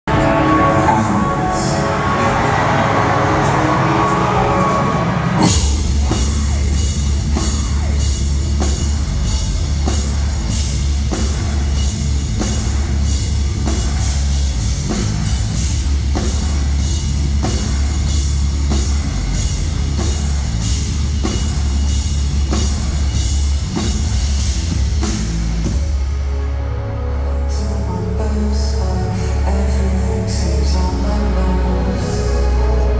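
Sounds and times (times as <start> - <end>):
distorted guitars and bass: 0.0 - 32.9
drum and cymbal hits: 0.1 - 26.3.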